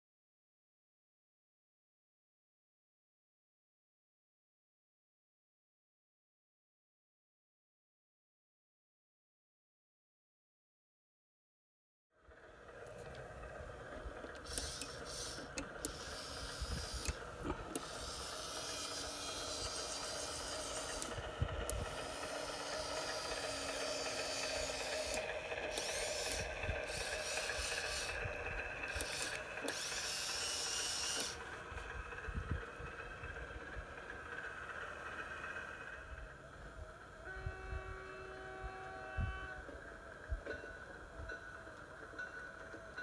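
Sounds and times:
model diesel engine sound: 12.2 - 41.2
motor and gear whine: 12.2 - 43.0
sharp clicks: 14.3 - 31.4
hiss: 14.4 - 32.0.

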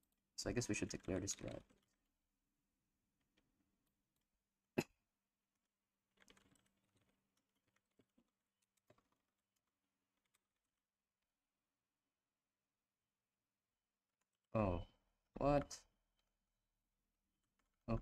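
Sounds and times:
faint keyboard typing: 0.4 - 2.2, 5.5 - 10.9.

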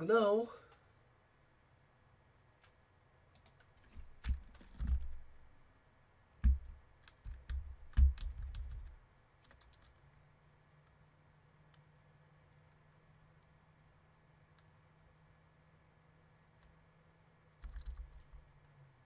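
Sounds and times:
keyboard typing: 3.3 - 5.3, 6.4 - 10.0, 17.6 - 18.7.

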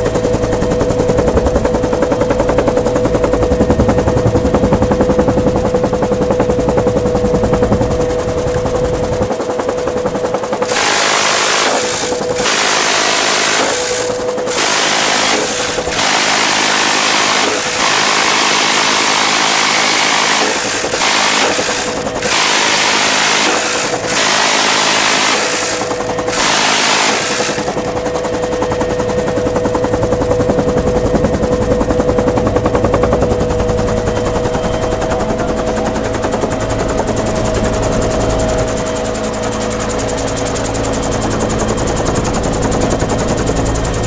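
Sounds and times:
helicopter rotor beat: 0.0 - 44.0
helicopter turbine whine: 0.0 - 44.0
minigun firing bursts: 10.4 - 28.4.

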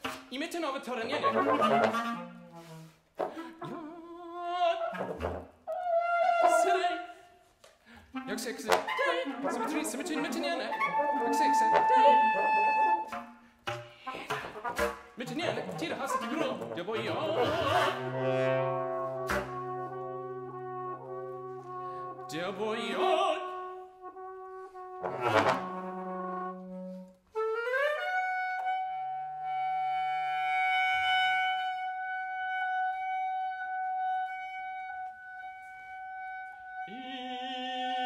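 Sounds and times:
trumpet and trombone playing: 1.1 - 2.9, 9.0 - 27.2.

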